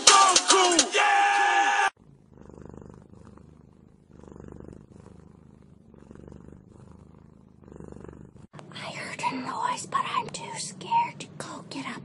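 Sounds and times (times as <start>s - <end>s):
loud music: 0.0s - 1.9s
cat purring: 2.0s - 12.0s.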